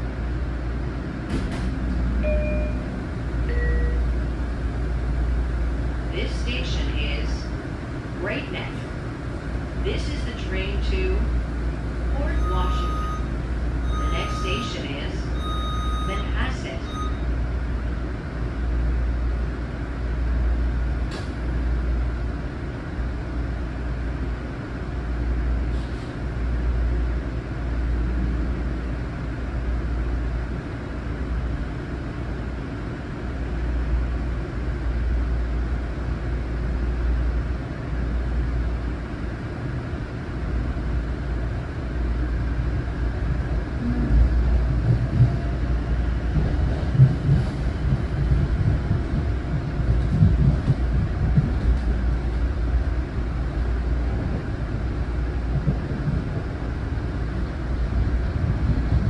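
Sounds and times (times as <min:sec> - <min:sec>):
train wheels rumbling on rail: 0:00.0 - 0:59.0
low pulsing drone: 0:43.3 - 0:59.0.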